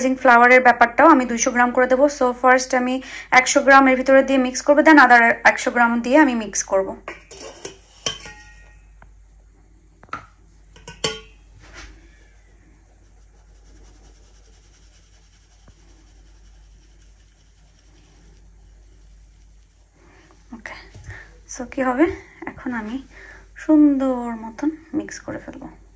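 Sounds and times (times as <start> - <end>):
utensils clinking against glass bowl: 7.3 - 8.8, 10.8 - 11.4
flour shaken through sieve: 11.6 - 25.9.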